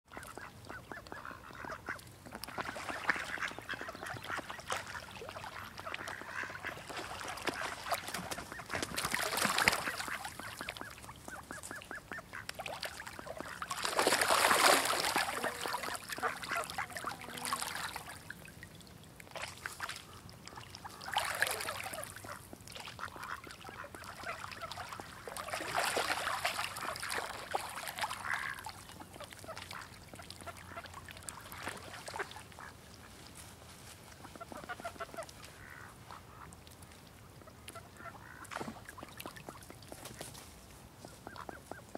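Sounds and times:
ducks and ducklings chattering: 0.1 - 6.8, 8.3 - 18.0.

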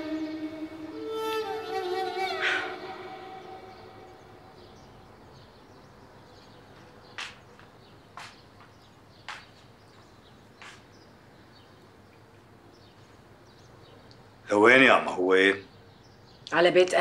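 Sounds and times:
faint bird chirping: 0.0 - 17.0
footsteps on hard floor: 6.7 - 10.8.

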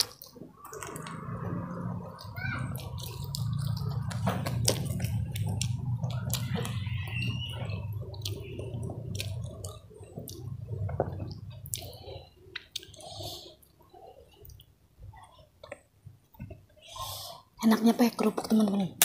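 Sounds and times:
wet chewing and mouth smacks: 0.0 - 14.8.

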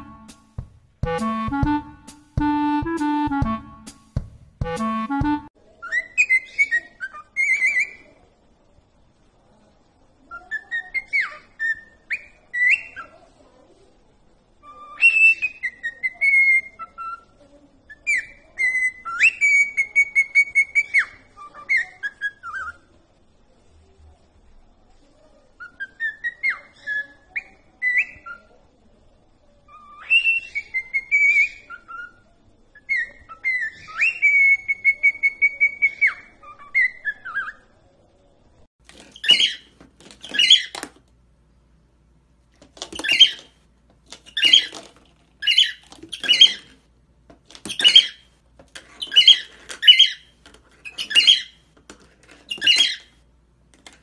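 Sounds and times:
cockatiel whistling song: 0.0 - 0.5, 14.6 - 17.2, 17.9 - 22.8, 25.6 - 28.4, 29.7 - 32.2, 32.8 - 37.6, 39.2 - 40.7, 43.0 - 43.5, 44.3 - 44.8, 45.4 - 46.7, 47.7 - 48.2, 49.0 - 51.6, 52.5 - 53.1
harsh bird calls: 39.1 - 40.8, 43.0 - 43.5, 45.4 - 46.8, 47.7 - 48.3, 49.0 - 51.6.

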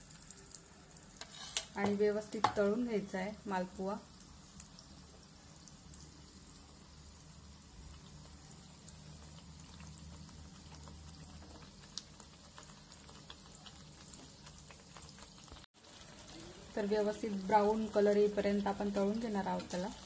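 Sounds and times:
batter sizzling in oil: 0.0 - 20.0
small crackles: 7.8 - 16.8.

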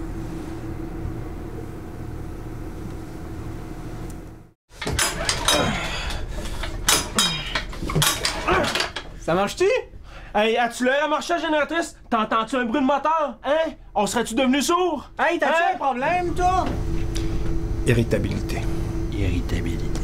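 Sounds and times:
steady hum: 0.0 - 10.6, 13.7 - 20.0
generator engine clanks and rattles: 4.7 - 9.3.

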